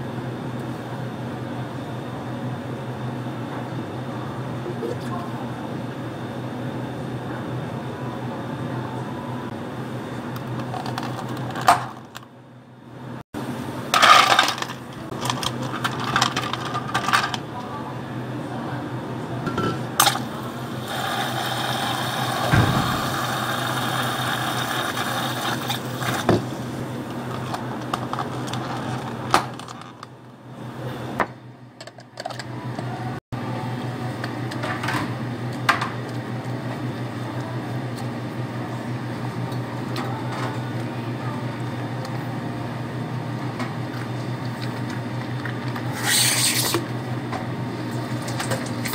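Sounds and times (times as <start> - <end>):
steady low hum: 0.0 - 31.8.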